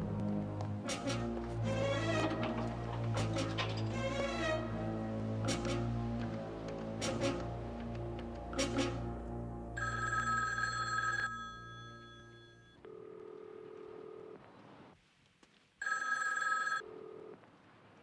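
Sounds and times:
low music drone: 0.0s - 9.9s
telephone bell ringing: 9.8s - 14.3s, 15.8s - 17.3s.

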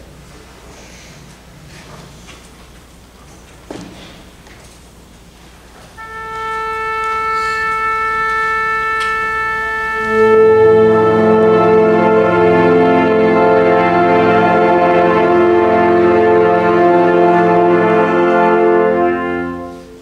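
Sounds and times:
wind band sustained chord: 6.0s - 20.0s
wind instrument holding note: 6.0s - 20.0s.

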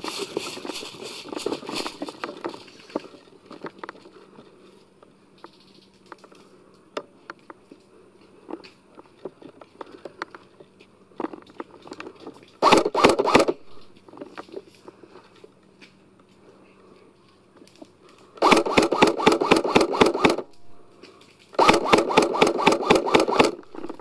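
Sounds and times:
airsoft gun firing bursts: 12.6s - 13.8s, 18.4s - 20.7s, 21.6s - 24.0s.

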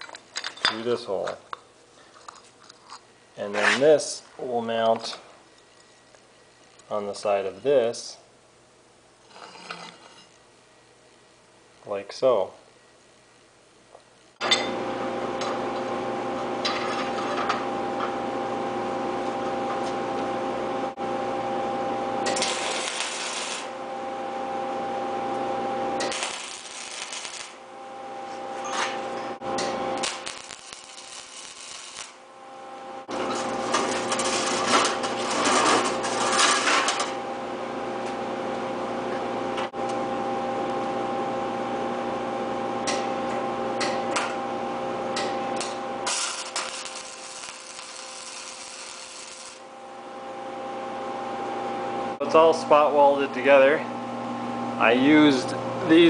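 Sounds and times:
welding machine hum: 14.2s - 38.3s, 39.8s - 56.0s
welding arc crackling: 22.2s - 23.8s, 25.8s - 37.2s, 45.2s - 49.7s.

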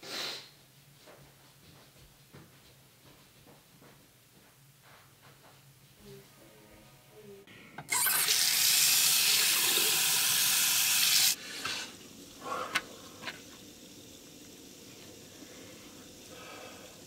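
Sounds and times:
faucet running into a sink: 7.9s - 17.0s.

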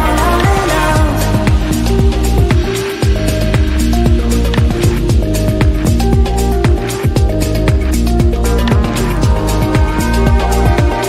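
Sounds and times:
held synth notes: 0.0s - 11.0s
kick drum beat: 0.0s - 11.0s.

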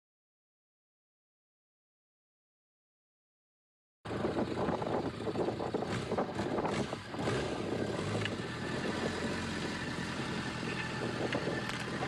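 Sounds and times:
motorcycle engine idling: 4.1s - 12.0s.

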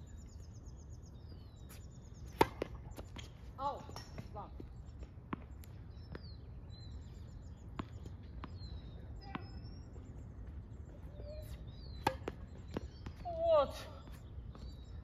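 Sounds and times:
birds chirping: 0.0s - 15.0s
racket striking tennis ball: 2.3s - 3.3s, 12.0s - 12.5s
tennis ball bouncing on court: 2.3s - 4.7s, 5.3s - 6.3s, 7.7s - 9.6s, 11.9s - 14.7s.

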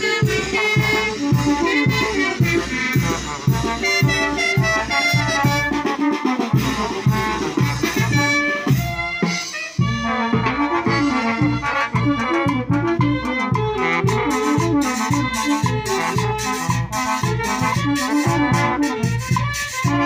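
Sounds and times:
brass band playing latin music: 0.0s - 20.0s.

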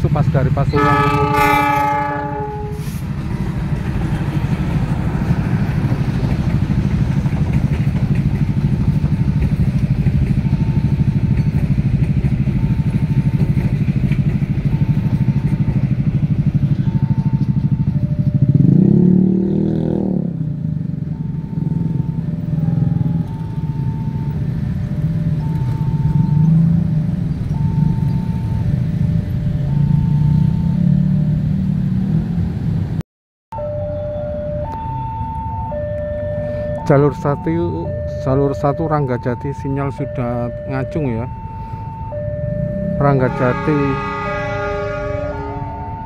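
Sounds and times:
train rumbling past: 0.0s - 33.0s, 37.1s - 46.0s
wheel clatter on rails: 3.2s - 17.7s
level crossing warning beeps: 9.0s - 19.0s, 21.0s - 26.8s, 27.4s - 28.9s, 29.5s - 30.9s, 33.6s - 44.3s
engine revving: 18.3s - 20.7s, 25.1s - 32.9s, 42.0s - 46.0s.

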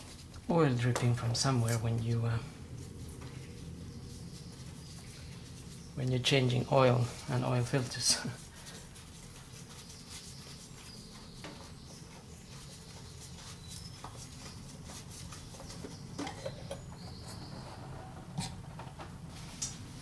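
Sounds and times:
low hum: 0.0s - 9.3s.

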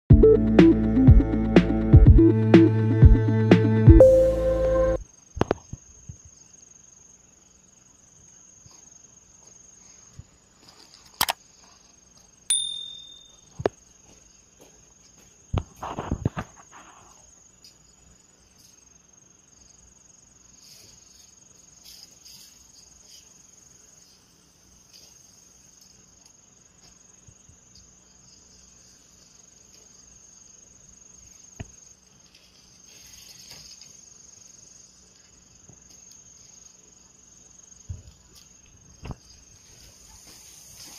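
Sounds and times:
insects chirring: 4.0s - 40.9s.

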